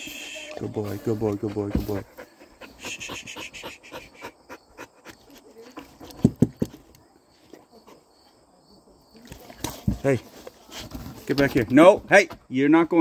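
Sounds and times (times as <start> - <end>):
dog panting: 1.0 - 6.5.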